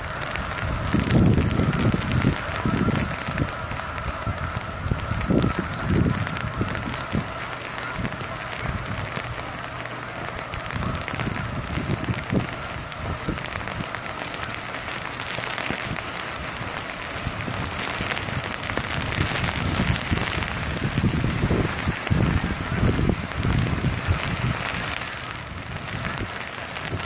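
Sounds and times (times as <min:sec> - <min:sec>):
hard rain on an umbrella: 0:00.0 - 0:27.0
wind buffeting microphone: 0:00.0 - 0:27.0.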